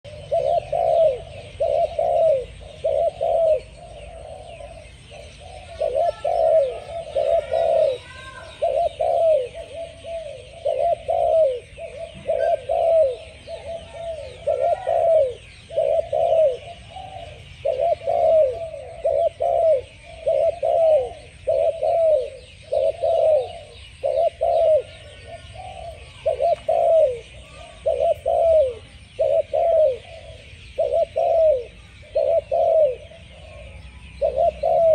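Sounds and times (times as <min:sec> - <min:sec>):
dove cooing: 0:00.0 - 0:34.9.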